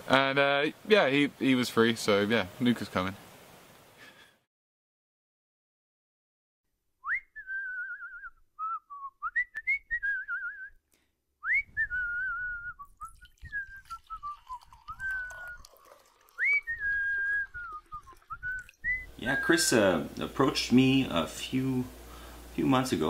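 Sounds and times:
person whistling a tune: 0:07.0 - 0:10.8, 0:11.4 - 0:15.6, 0:16.4 - 0:19.7.

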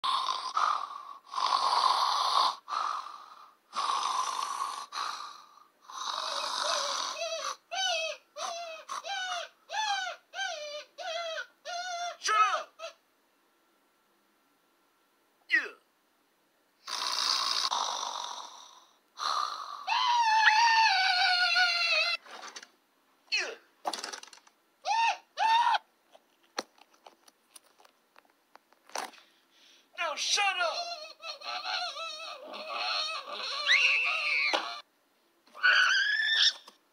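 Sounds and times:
person snoring: 0:00.0 - 0:07.6, 0:16.8 - 0:19.9, 0:30.8 - 0:34.8
breathy hissing cry: 0:00.2 - 0:13.0, 0:19.2 - 0:22.2, 0:30.1 - 0:34.8
high-pitched scream: 0:19.9 - 0:22.2, 0:24.8 - 0:25.8, 0:31.4 - 0:34.8, 0:35.5 - 0:36.7.

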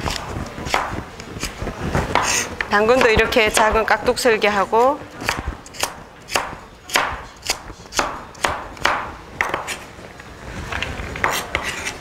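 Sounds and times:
knife chopping on cutting board: 0:00.1 - 0:01.0, 0:02.1 - 0:03.9, 0:05.2 - 0:09.8, 0:11.2 - 0:12.0.

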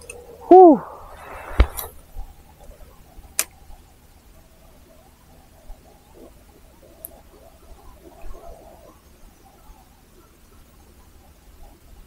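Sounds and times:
man exclaiming: 0:00.5 - 0:00.9.

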